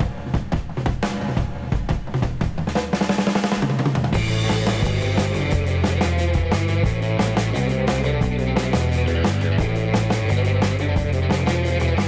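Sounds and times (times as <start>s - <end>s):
music with steady drum beat: 0.0s - 12.0s.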